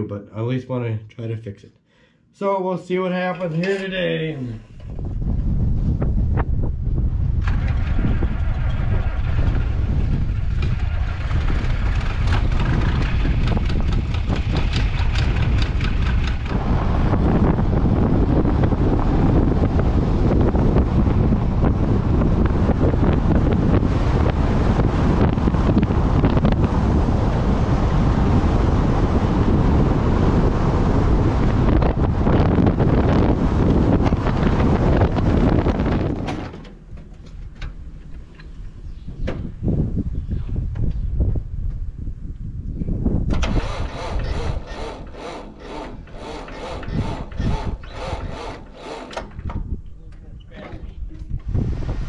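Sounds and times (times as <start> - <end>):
wind buffeting microphone: 4.7 - 52.0
vehicle driving on gravel: 7.4 - 30.4.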